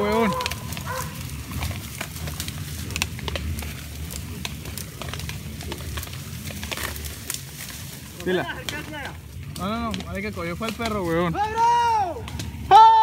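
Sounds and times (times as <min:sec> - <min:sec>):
sharp clicks and crackles in brush: 0:00.0 - 0:12.9
low rumble: 0:00.0 - 0:13.0.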